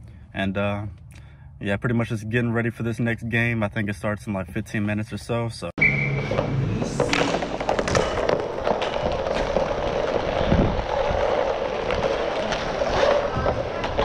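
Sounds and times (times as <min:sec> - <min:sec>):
skate wheels rolling: 0:05.8 - 0:14.0
hockey sticks and puck clacking: 0:05.9 - 0:14.0.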